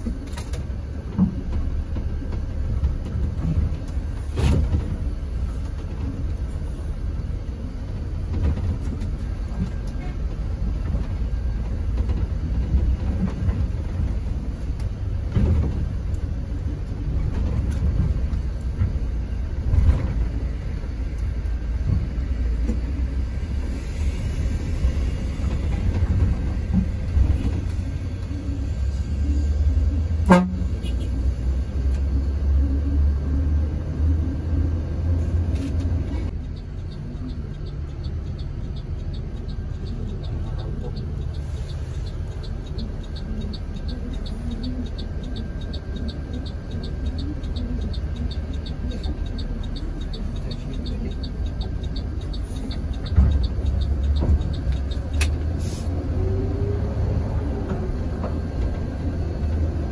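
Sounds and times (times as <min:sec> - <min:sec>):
bus diesel engine and road rumble: 0:00.0 - 0:59.9
horn toot: 0:30.2 - 0:31.2
fast even ticking: 0:36.3 - 0:55.2.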